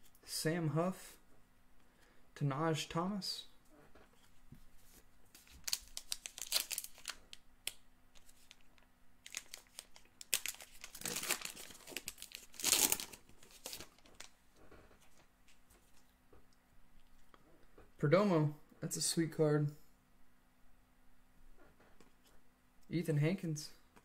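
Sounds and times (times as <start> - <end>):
wrapper crinkling and tearing: 5.4 - 14.4.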